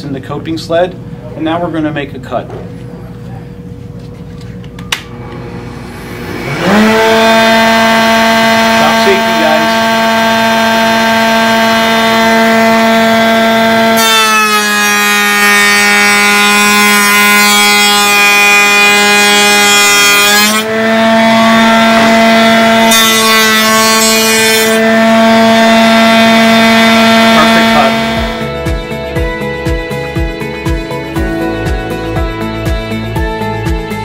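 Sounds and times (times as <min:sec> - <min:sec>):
router motor whining: 0:04.9 - 0:28.5
router bit cutting wood: 0:05.1 - 0:28.5.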